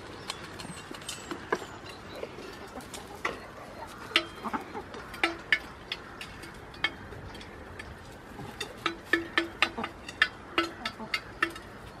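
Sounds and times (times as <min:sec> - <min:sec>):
hens clucking: 0:00.0 - 0:12.0.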